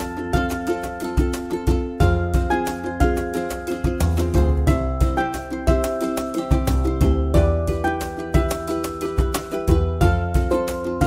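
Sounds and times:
punchy bass beat: 0:00.0 - 0:11.0
upbeat plucked string music: 0:00.0 - 0:11.0.

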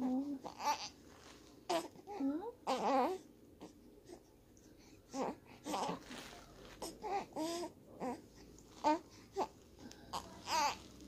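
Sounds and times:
baby babbling: 0:00.0 - 0:01.0, 0:01.7 - 0:03.2, 0:05.1 - 0:06.1, 0:06.8 - 0:08.2, 0:08.8 - 0:10.9
baby fussing and crying: 0:00.0 - 0:04.3, 0:05.1 - 0:11.0.

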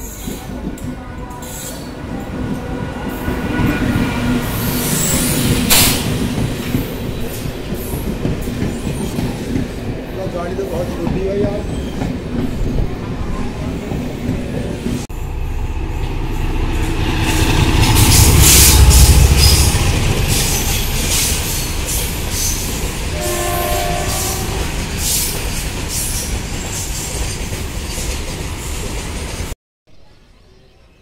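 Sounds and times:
train horn: 0:03.2 - 0:04.4, 0:23.1 - 0:24.8
freight train wheels clattering: 0:04.4 - 0:12.9.

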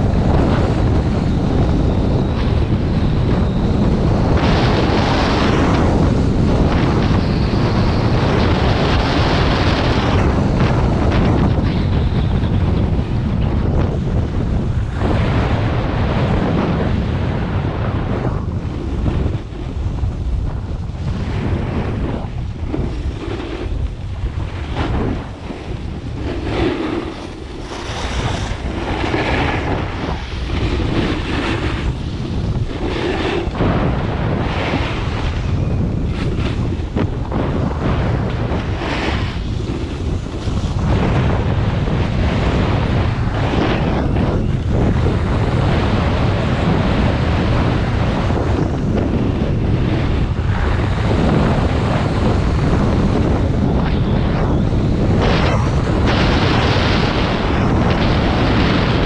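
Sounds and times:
wind rushing over microphone: 0:00.0 - 0:59.0
ski edges scraping snow: 0:24.4 - 0:33.8, 0:37.6 - 0:41.2.

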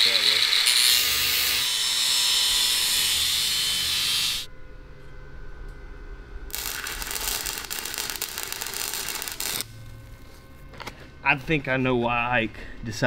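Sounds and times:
power tool grinding steel: 0:00.0 - 0:04.5.

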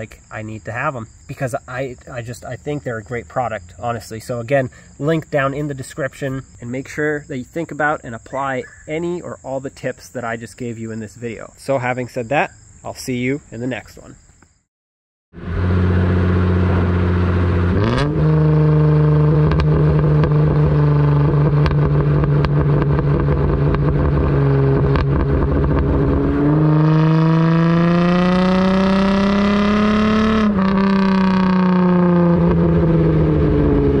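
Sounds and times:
car engine running: 0:15.4 - 0:34.0.

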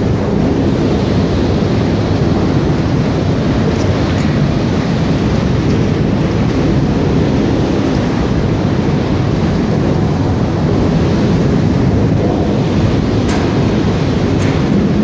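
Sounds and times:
log debarker machine running: 0:12.2 - 0:15.0.

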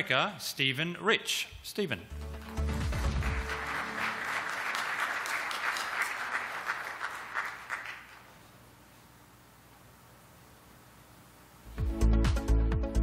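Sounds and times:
audience applauding: 0:02.2 - 0:08.4.

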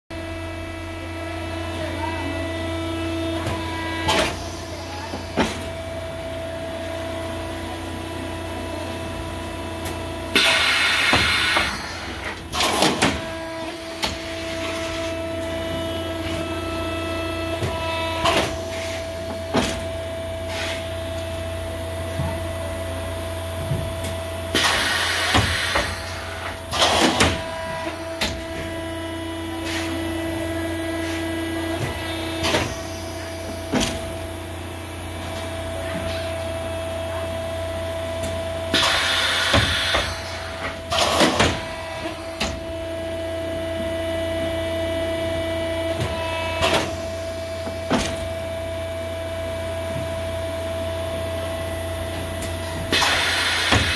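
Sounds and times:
machine humming: 0:00.1 - 0:53.9.

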